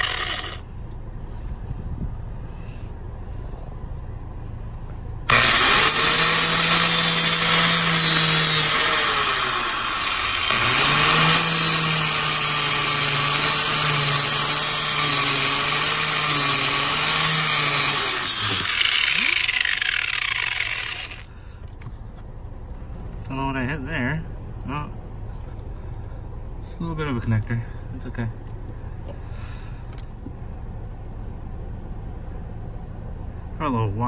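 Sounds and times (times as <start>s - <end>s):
angle grinder grinding metal: 0.0s - 0.6s, 5.3s - 21.3s.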